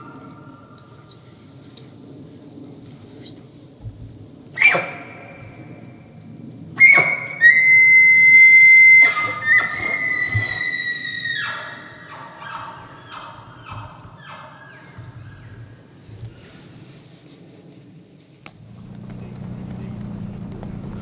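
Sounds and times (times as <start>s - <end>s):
elk bugling: 4.5s - 16.8s.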